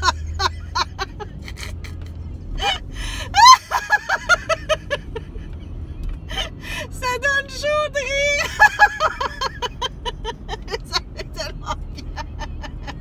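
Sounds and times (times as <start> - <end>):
woman laughing hard: 0.0 - 5.6, 8.3 - 13.0
low car rumble: 0.0 - 13.0.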